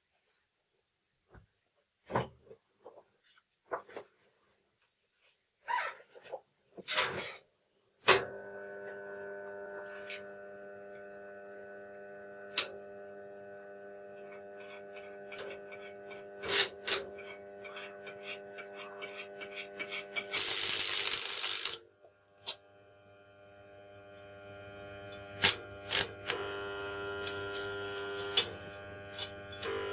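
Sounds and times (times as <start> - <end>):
welder transformer humming: 8.1 - 29.9
welding arc crackling and sizzling: 8.1 - 29.9.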